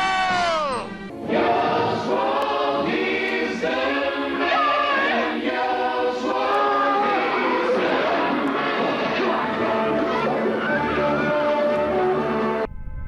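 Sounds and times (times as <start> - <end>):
choral music: 0.0 - 12.7.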